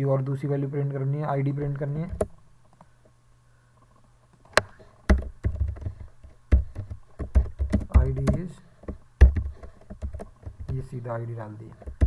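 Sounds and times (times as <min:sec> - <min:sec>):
keyboard keystrokes: 0:05.1 - 0:10.9.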